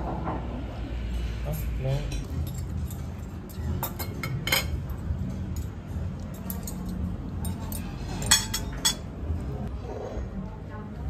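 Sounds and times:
low dining-room hum: 0.0s - 11.0s
tableware clinking: 2.1s - 9.3s.

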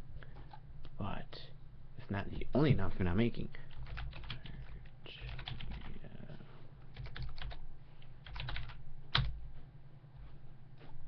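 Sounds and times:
typing on computer keyboard: 3.7s - 5.9s, 6.9s - 7.6s, 8.2s - 9.4s.

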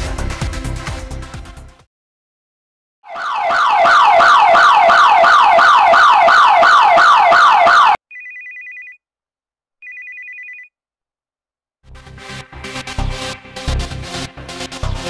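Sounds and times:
burglar alarm siren wailing: 3.0s - 8.0s
mobile phone ringtone: 8.1s - 9.0s, 9.8s - 10.7s.

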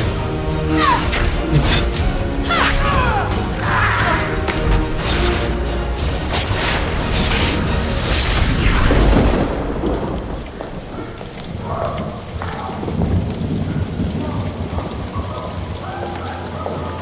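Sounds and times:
heavy rain: 0.0s - 17.0s
low rumbling thunder: 8.5s - 17.0s.

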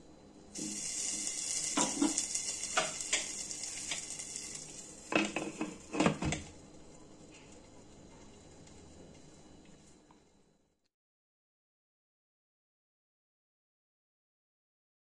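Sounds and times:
sizzling hiss: 0.3s - 10.5s.

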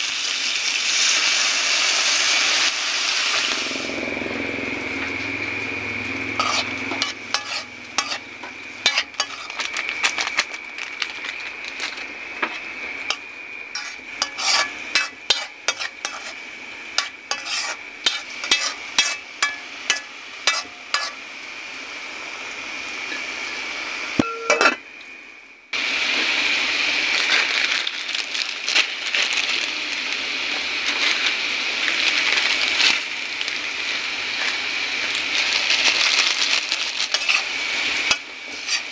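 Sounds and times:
food sizzling: 0.0s - 38.9s
thin high whine: 1.7s - 27.3s
spoon scraping metal pot: 6.4s - 9.7s, 13.1s - 16.4s, 17.0s - 21.2s, 38.1s - 38.9s
spoon clinking against pot: 24.2s - 24.8s.

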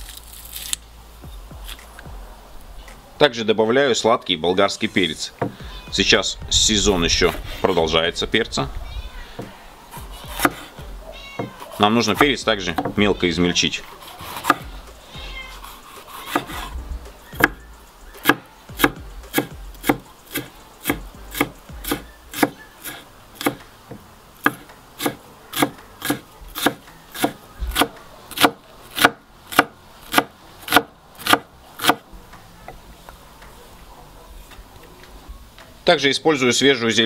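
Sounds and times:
knife chopping on wooden board: 5.4s - 5.6s, 9.4s - 10.8s, 11.4s - 13.0s, 13.9s - 14.8s, 15.6s - 16.8s, 17.4s - 17.6s, 18.2s - 32.0s.

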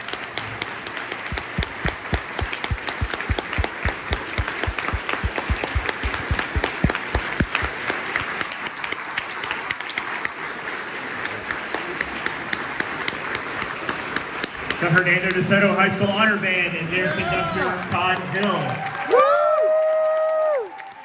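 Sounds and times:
audience applauding: 0.0s - 15.5s, 17.3s - 21.0s
hands clapping close by: 0.0s - 15.5s.

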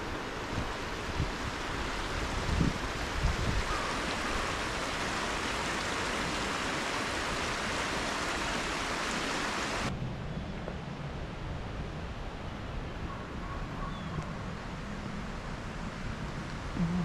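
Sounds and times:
mountain stream rushing: 0.0s - 9.9s.

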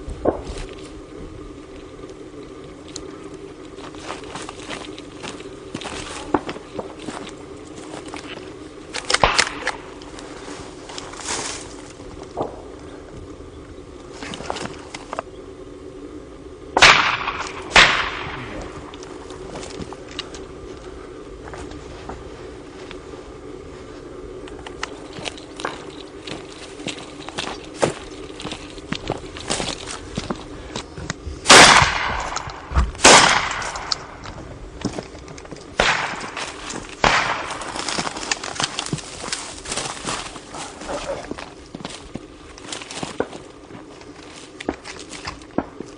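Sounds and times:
shotgun shots with echo: 16.8s - 18.5s, 31.5s - 33.8s, 35.8s - 36.4s, 37.0s - 37.5s.

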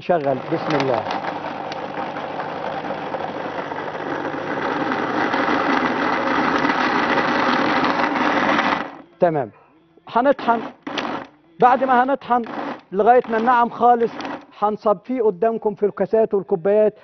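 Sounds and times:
electric blender running: 0.0s - 9.2s, 10.2s - 14.6s.

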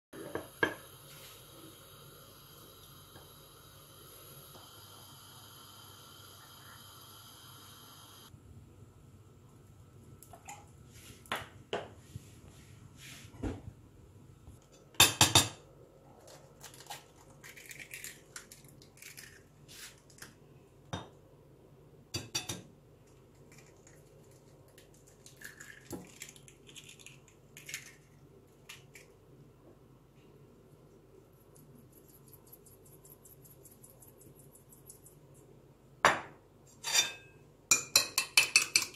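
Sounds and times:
eggs cracking: 16.3s - 20.3s, 23.0s - 29.2s.

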